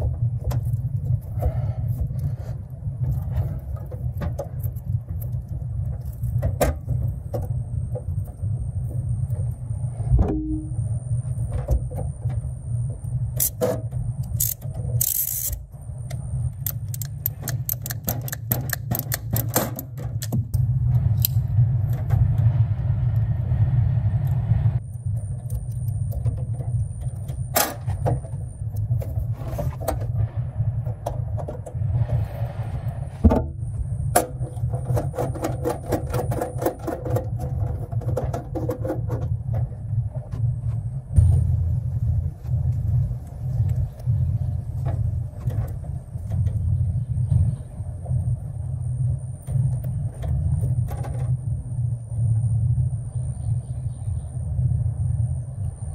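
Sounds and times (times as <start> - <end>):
steady low rumble: 0.0 - 55.9
wire strippers clicking and snipping: 13.4 - 20.6.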